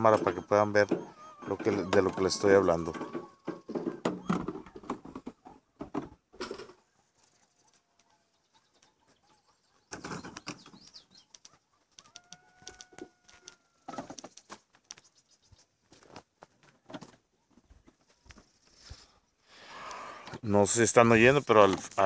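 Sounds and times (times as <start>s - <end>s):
distant coyote howl: 0.0s - 4.7s.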